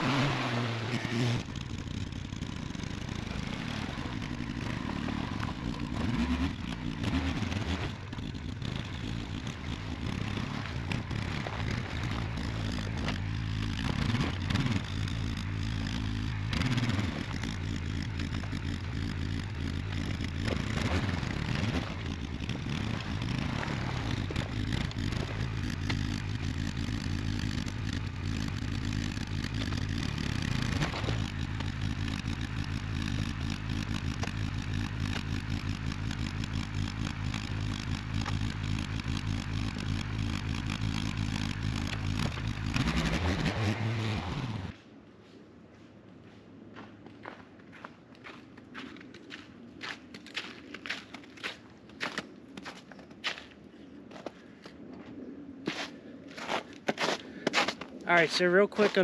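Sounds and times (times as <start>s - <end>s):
trailer rattling and scraping: 0.0s - 44.8s
vehicle engine running: 0.0s - 44.8s.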